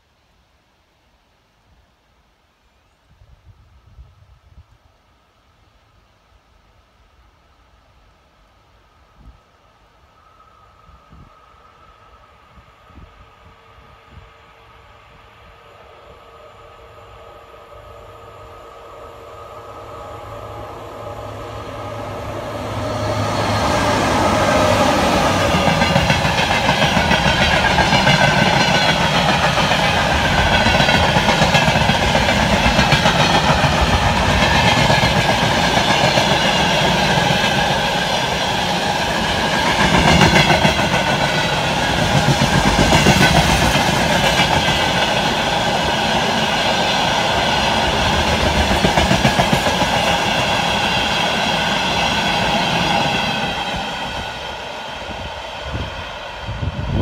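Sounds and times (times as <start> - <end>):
freight train wheels clattering: 24.3 - 54.1.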